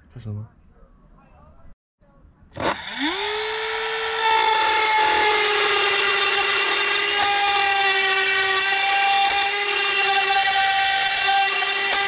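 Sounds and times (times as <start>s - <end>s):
rotary tool whining: 2.6s - 12.0s.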